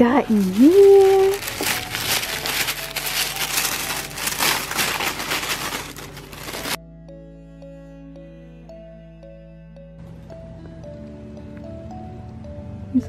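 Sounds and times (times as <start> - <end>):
tissue paper crinkling in box: 0.2 - 6.8.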